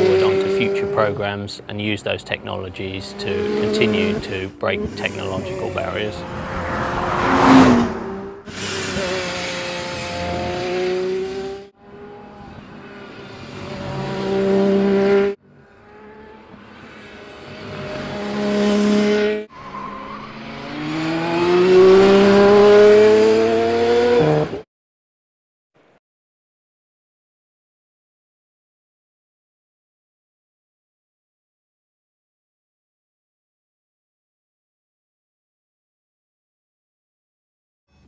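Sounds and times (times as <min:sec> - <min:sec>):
car engine revving high: 0:00.0 - 0:24.6.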